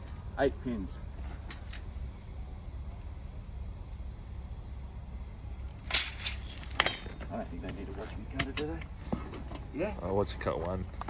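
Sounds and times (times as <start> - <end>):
low outdoor rumble: 0.0 - 11.0
tape measure metallic clicks: 5.8 - 7.1.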